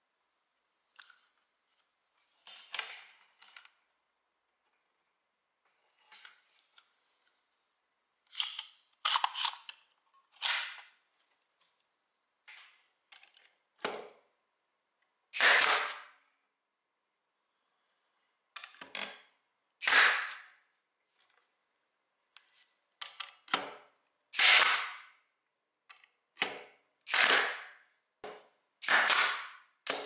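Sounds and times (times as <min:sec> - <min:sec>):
pneumatic stapler firing: 0:15.4 - 0:16.1, 0:19.8 - 0:20.5, 0:24.4 - 0:25.1, 0:27.1 - 0:27.8, 0:28.8 - 0:30.0.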